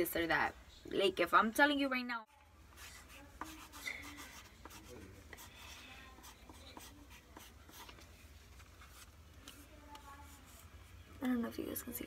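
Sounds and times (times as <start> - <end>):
pencil scratching on paper: 2.7 - 8.2.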